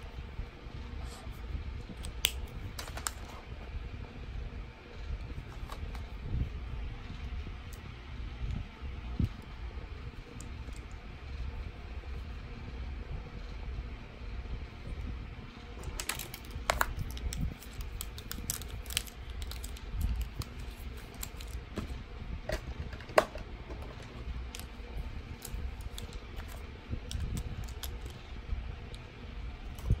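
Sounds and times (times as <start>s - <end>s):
plastic pens clicking together: 15.8s - 21.6s.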